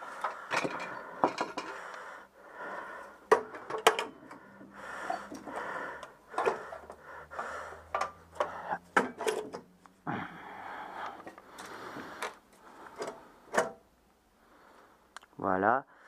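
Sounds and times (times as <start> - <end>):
small parts clicking and knocking: 0.0 - 2.1, 3.0 - 9.7.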